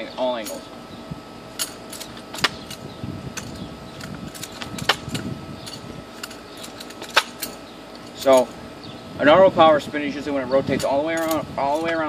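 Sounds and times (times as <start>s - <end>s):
rifle sling rattling: 1.5s - 8.6s.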